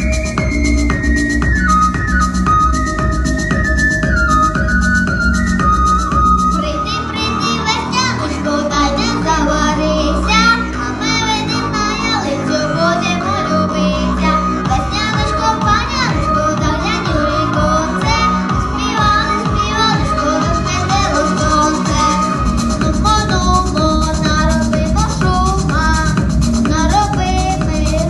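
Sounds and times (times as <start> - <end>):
electronic dance music: 0.0 - 28.0
boy singing into a microphone: 6.6 - 28.0.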